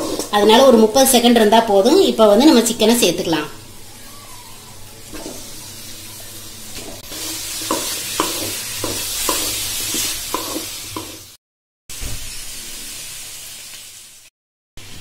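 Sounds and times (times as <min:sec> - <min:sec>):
chicken sizzling in hot oil: 0:04.9 - 0:15.0
spatula knocking against pan: 0:07.7 - 0:09.6.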